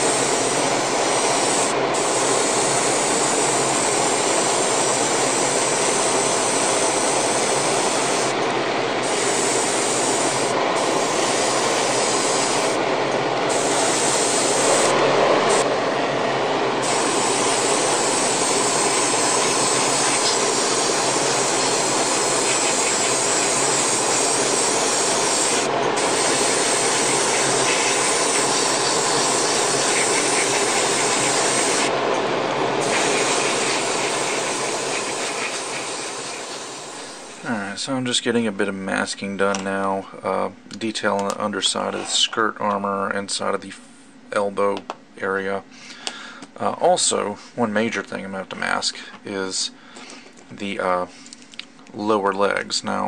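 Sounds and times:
airbrush hissing: 0:00.0 - 0:08.4, 0:09.0 - 0:12.8, 0:13.4 - 0:15.8, 0:16.8 - 0:32.0, 0:32.8 - 0:37.5
exhaust fan rushing: 0:00.0 - 0:37.9.

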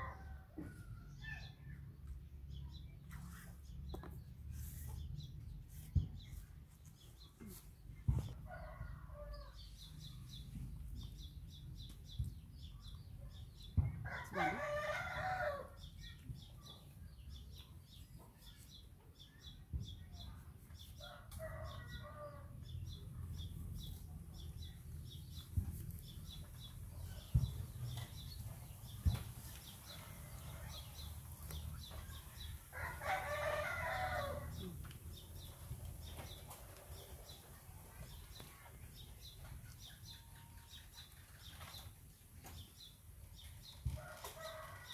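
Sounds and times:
rooster crowing: 0:14.1 - 0:15.7, 0:32.8 - 0:34.6.

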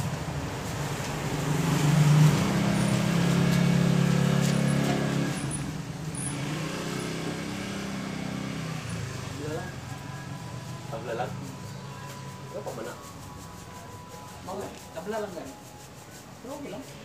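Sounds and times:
motorcycle engine passing by: 0:00.0 - 0:13.1.

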